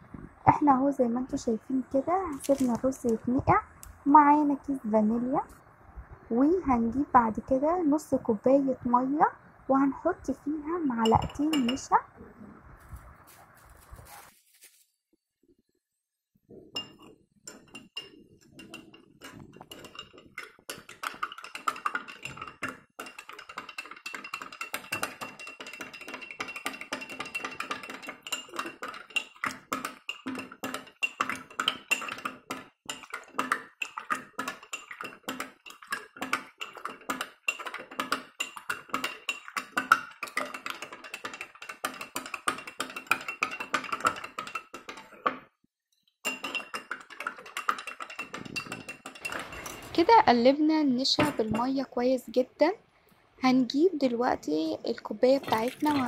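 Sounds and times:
spoon clinking against glass: 11.0s - 11.9s, 16.8s - 32.3s, 46.2s - 50.0s.

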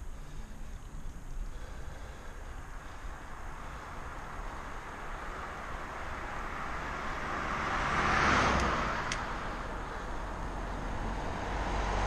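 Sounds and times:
car passing by: 3.6s - 12.0s.

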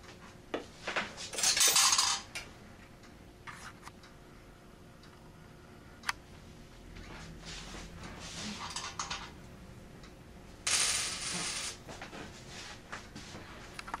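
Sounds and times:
coins clattering in payphone: 1.3s - 2.3s, 8.6s - 9.3s, 10.7s - 11.8s.

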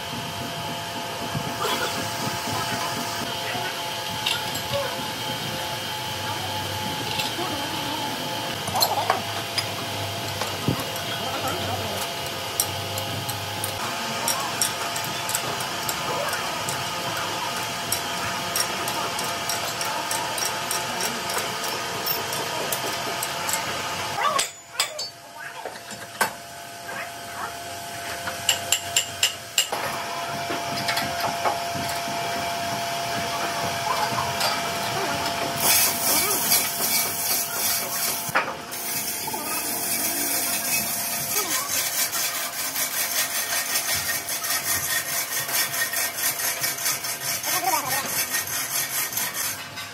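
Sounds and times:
machinery running: 29.8s - 49.6s.

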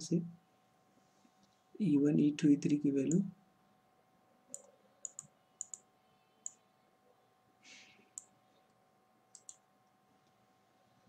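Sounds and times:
computer mouse clicks: 4.5s - 6.6s, 8.2s - 9.6s.

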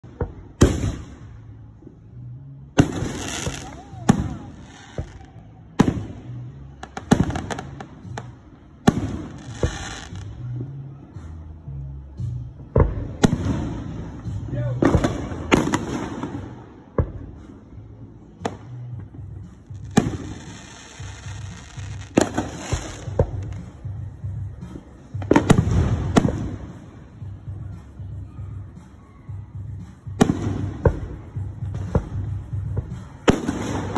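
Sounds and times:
firework crackling pops: 0.3s - 1.2s, 2.8s - 10.4s, 19.8s - 23.7s.

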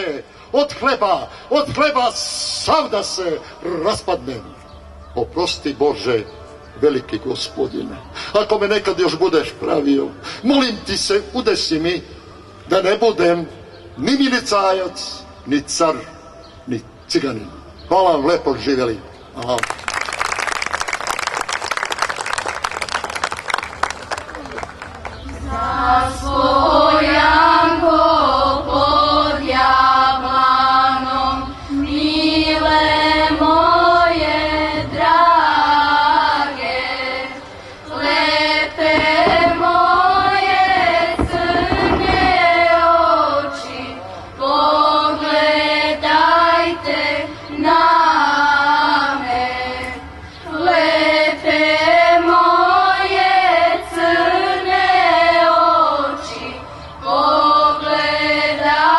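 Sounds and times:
children's choir singing a hymn: 0.0s - 12.0s, 25.2s - 58.9s.

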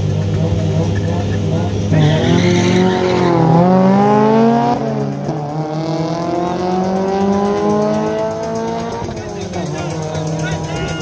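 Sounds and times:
cars accelerating hard: 0.0s - 11.0s.

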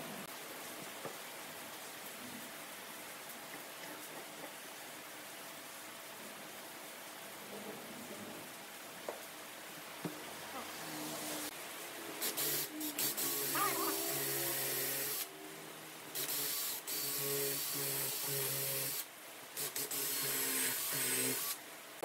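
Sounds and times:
power tool hissing on wood: 12.2s - 15.3s, 16.1s - 21.6s.

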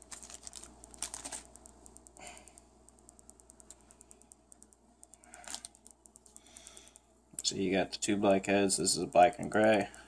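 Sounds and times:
plastic bag rustling: 0.0s - 1.6s
small cable clicks: 0.1s - 7.5s.

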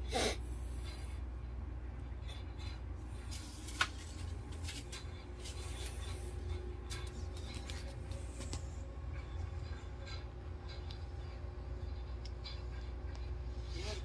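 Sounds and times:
low electrical machinery hum: 0.0s - 14.0s.

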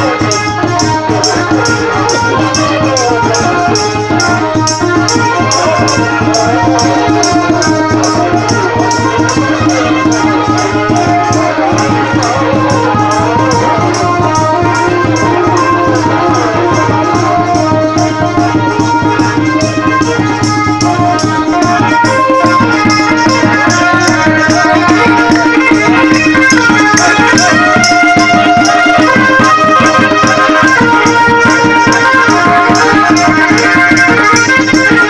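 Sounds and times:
fast rattling percussion: 0.0s - 35.0s
steady drone: 0.0s - 35.0s
melodic lines: 20.3s - 29.4s.

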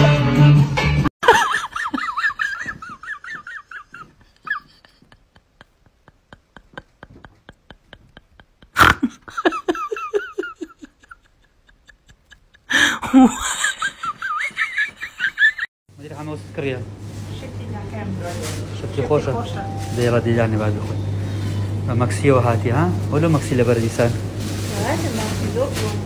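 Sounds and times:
high-pitched laughing and giggling: 1.2s - 15.7s.

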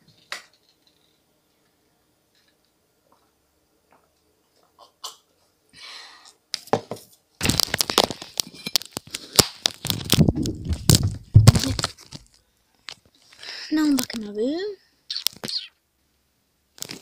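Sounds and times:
microphone handling noise: 9.9s - 12.0s.

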